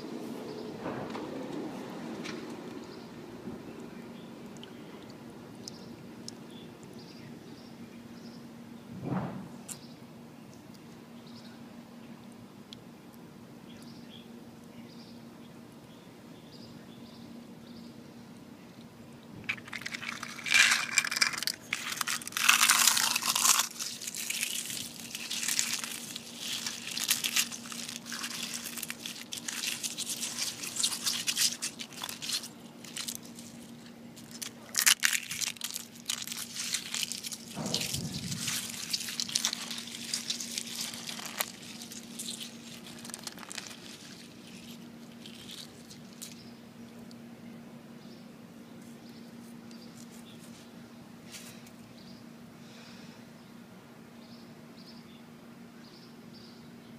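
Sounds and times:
eggshells crunching: 19.4s - 46.4s
hands mashing wet eggs: 19.5s - 46.4s.

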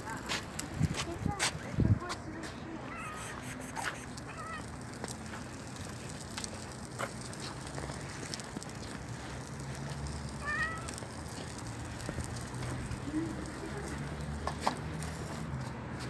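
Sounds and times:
cat meowing: 2.8s - 4.7s, 10.3s - 11.0s.

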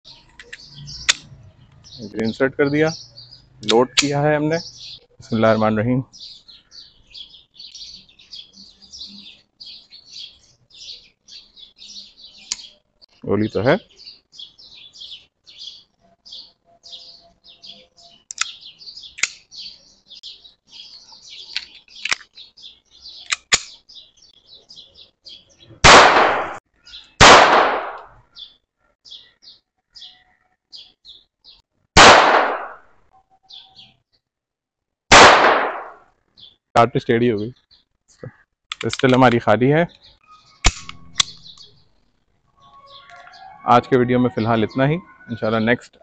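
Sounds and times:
birds chirping: 0.0s - 34.3s, 35.1s - 46.0s
pistol shots: 25.8s - 26.6s, 27.2s - 28.1s, 32.0s - 32.8s, 35.1s - 36.0s, 40.6s - 41.6s.

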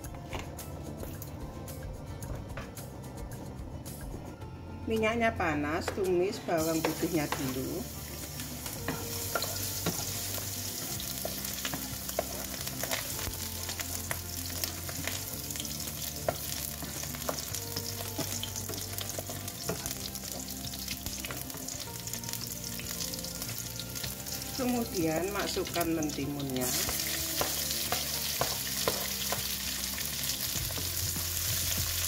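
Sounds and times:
garlic sizzling in hot oil: 6.4s - 32.0s.

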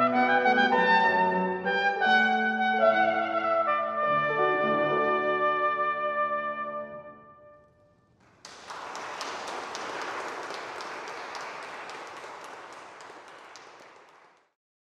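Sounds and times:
trumpet and piano chord: 0.0s - 7.6s
audience applause: 8.2s - 14.6s.

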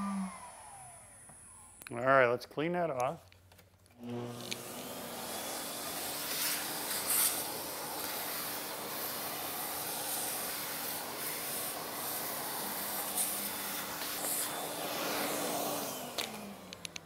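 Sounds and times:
shop vacuum sucking dust: 0.0s - 1.8s, 4.0s - 17.0s.

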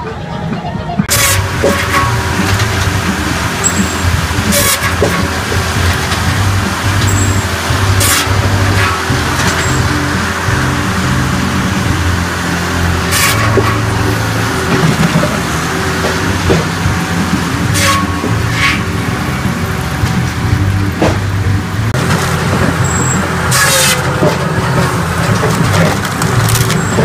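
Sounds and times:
firewood processor engine drone: 1.0s - 27.0s.

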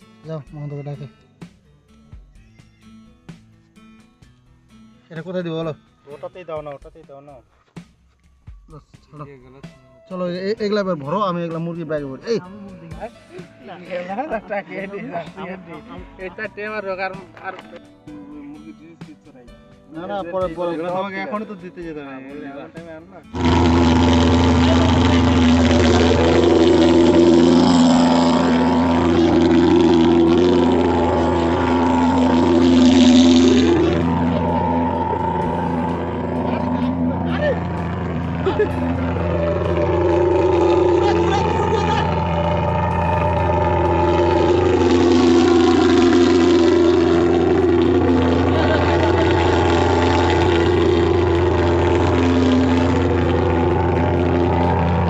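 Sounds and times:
fogging machine engine droning: 23.4s - 55.0s.

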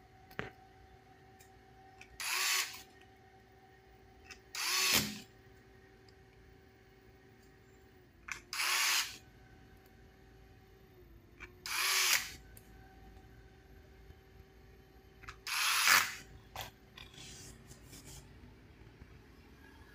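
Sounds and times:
electric screwdriver whirring: 2.1s - 2.9s, 4.5s - 5.2s, 8.3s - 9.2s, 11.6s - 12.4s, 15.3s - 16.2s.

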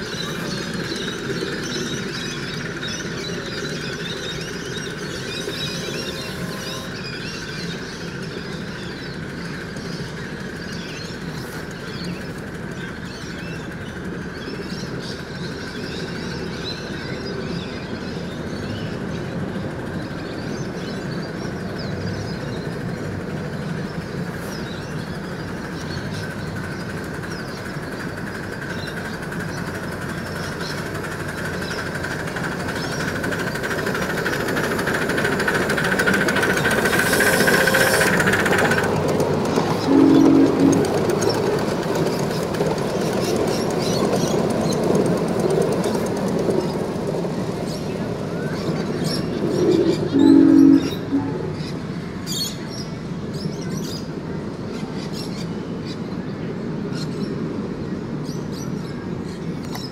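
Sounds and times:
miniature steam locomotive running: 0.0s - 59.9s
steady high tone: 39.8s - 41.2s, 49.3s - 51.9s
low whistle toot: 39.9s - 40.9s, 49.9s - 51.6s.

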